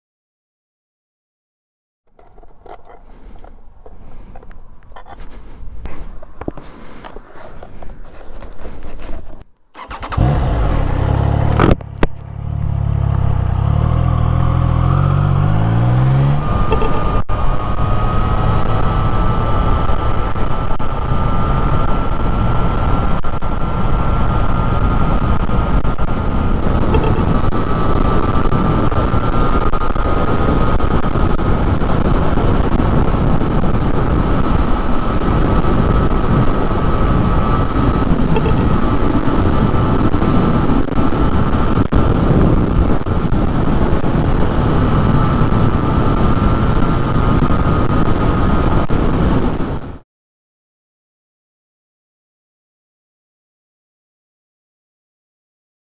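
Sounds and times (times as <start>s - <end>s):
motorcycle engine accelerating: 9.7s - 50.0s
wind rushing in helmet: 14.7s - 50.0s.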